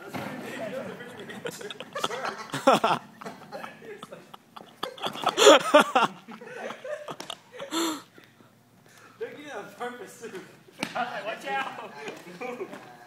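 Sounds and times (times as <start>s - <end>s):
people laughing and exclaiming: 0.2s - 8.0s.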